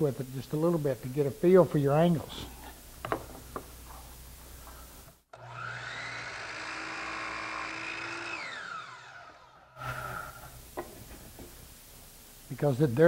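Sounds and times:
miter saw cutting wood: 5.3s - 10.5s.

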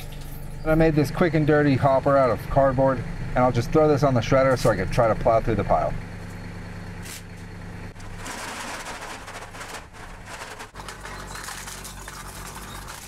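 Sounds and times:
low motor hum: 0.0s - 13.0s
shredder crunching cans: 8.0s - 13.0s.

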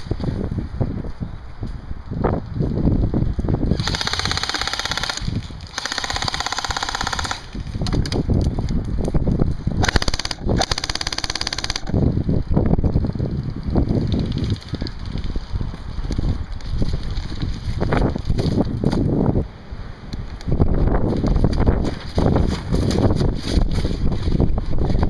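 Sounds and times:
airsoft gun firing bursts: 3.7s - 7.6s, 9.8s - 12.0s.

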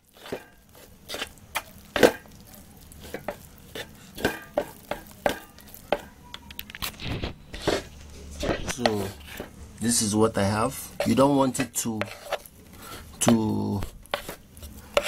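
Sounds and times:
paste being stirred in a bowl: 0.0s - 15.0s.

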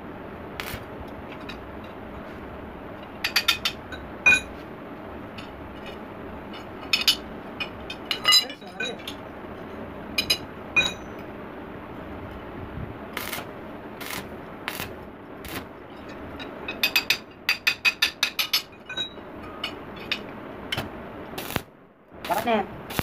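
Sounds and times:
welding arc crackling: 0.5s - 1.1s, 13.1s - 15.8s, 20.7s - 23.0s.

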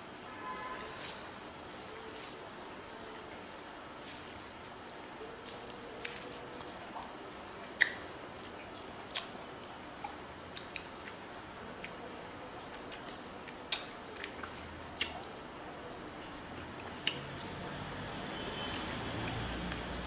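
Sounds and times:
faint steady hiss: 0.0s - 20.0s
fingers mixing rice on metal plate: 0.7s - 7.1s
mouth chewing: 0.9s - 11.2s, 11.8s - 15.8s, 16.8s - 17.7s.

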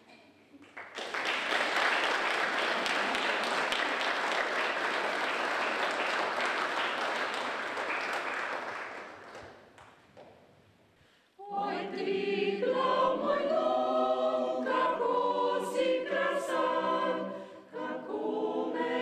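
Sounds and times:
audience applauding: 0.6s - 9.6s.

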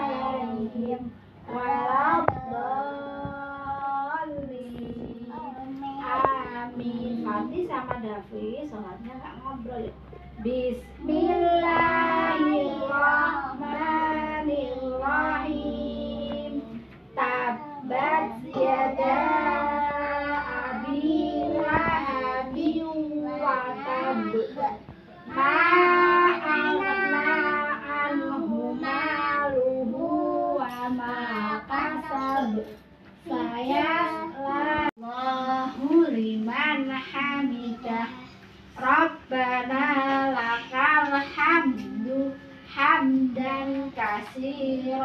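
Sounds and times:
children chanting prayers: 0.0s - 7.6s, 10.8s - 36.0s.

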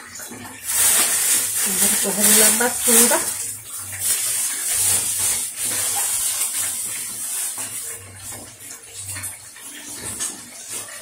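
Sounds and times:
tap water running into sink: 0.0s - 11.0s.

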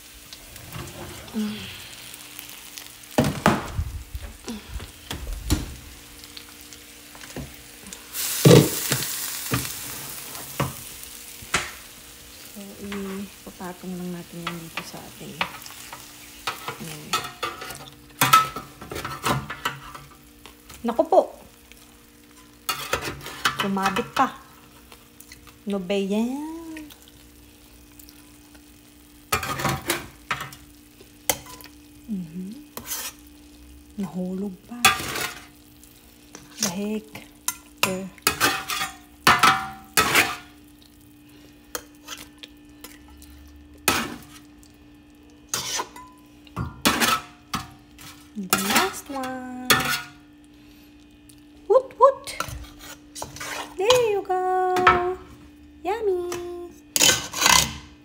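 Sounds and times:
fish sizzling in hot oil: 0.0s - 0.6s, 1.3s - 46.5s
steady low hum: 0.0s - 8.9s
metal spatula scraping a steel pot: 32.8s - 33.2s, 45.5s - 46.1s, 52.4s - 53.8s, 57.0s - 57.8s.

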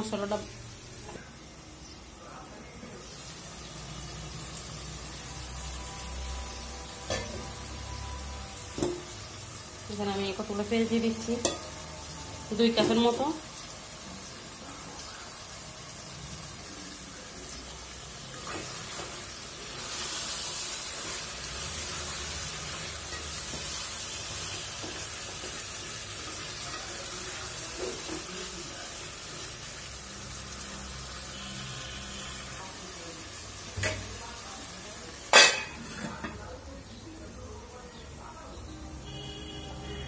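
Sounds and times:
onions and meat sizzling: 0.0s - 40.0s
metal clanks on a pot: 7.1s - 7.5s, 11.4s - 11.8s, 33.8s - 34.1s, 35.3s - 36.4s.

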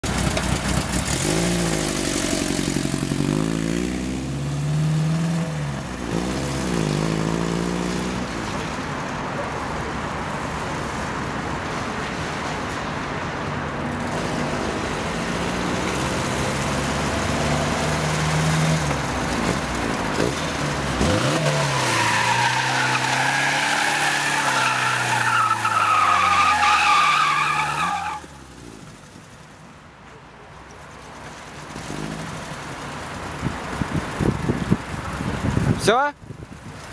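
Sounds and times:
car engine revving: 14.1s - 28.2s
tyres squealing: 21.3s - 28.3s.

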